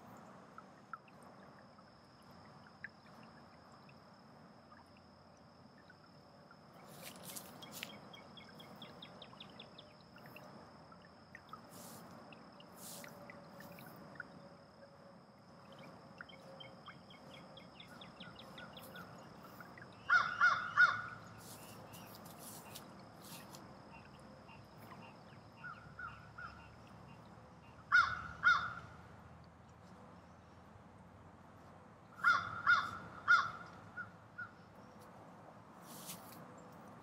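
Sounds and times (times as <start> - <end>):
crow cawing: 20.0 - 21.2, 27.9 - 28.8, 32.2 - 33.7.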